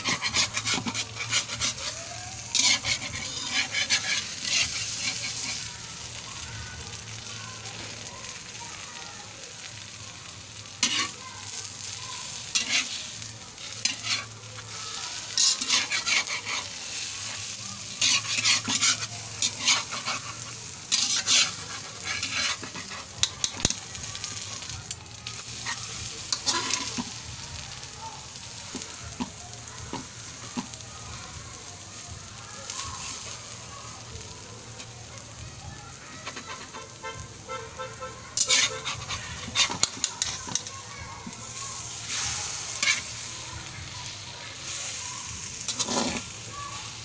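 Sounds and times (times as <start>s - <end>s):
metal spatula scraping pan: 0.0s - 5.7s, 10.8s - 11.2s, 12.4s - 14.4s, 15.1s - 23.8s, 25.6s - 27.2s, 36.2s - 37.1s, 38.4s - 43.4s, 45.4s - 46.4s
eggs sizzling in oil: 0.0s - 47.0s.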